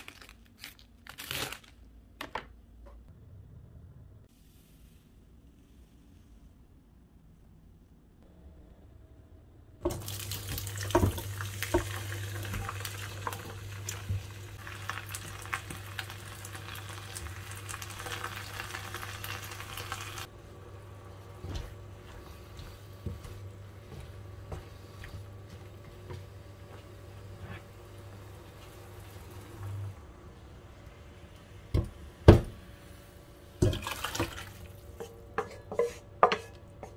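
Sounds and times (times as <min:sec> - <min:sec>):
vegetables sizzling in frying pan: 0:09.9 - 0:20.3
steady low hum: 0:20.2 - 0:33.6
utensils knocking against pan: 0:35.0 - 0:36.9.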